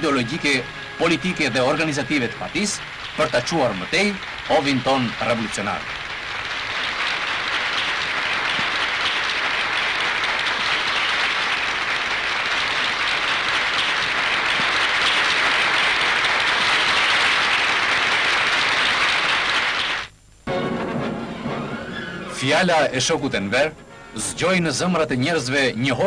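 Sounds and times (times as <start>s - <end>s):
crowd applauding: 0.0s - 20.1s.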